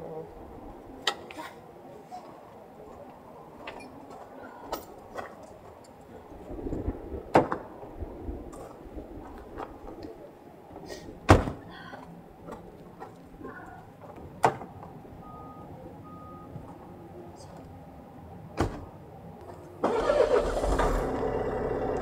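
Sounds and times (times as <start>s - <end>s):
car doors shutting: 19.8s - 22.0s.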